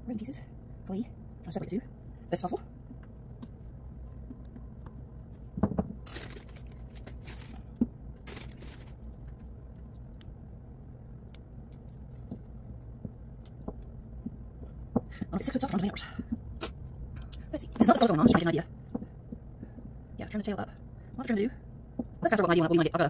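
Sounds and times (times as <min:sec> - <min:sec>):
steady low hum: 0:00.0 - 0:23.0
rustling scrapes: 0:06.0 - 0:09.4.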